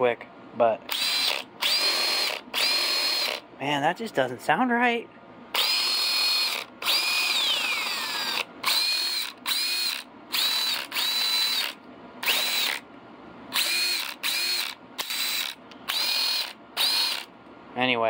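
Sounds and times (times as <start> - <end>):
man talking: 0.0 - 0.9, 3.6 - 5.1, 17.8 - 18.0
impact wrench motor whine: 0.9 - 3.4, 5.6 - 12.8, 13.5 - 17.3.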